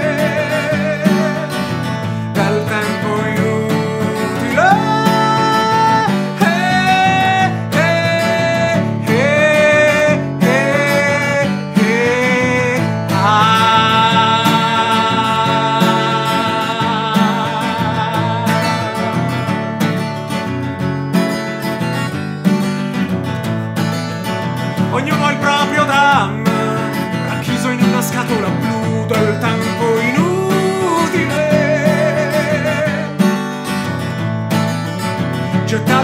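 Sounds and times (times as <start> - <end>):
man singing: 0.0 - 20.6, 24.8 - 33.8, 35.1 - 36.0
strummed acoustic guitar: 0.0 - 36.0.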